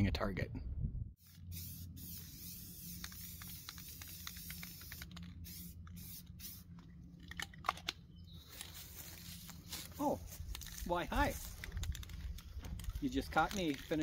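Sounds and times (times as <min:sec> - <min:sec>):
steady low rumble: 0:00.0 - 0:13.8
spray paint can hissing: 0:01.2 - 0:06.8.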